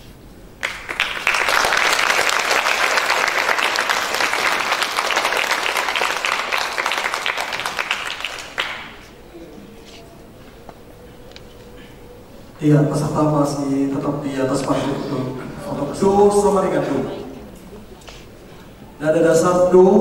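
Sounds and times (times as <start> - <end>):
audience applauding: 0.6 - 9.2.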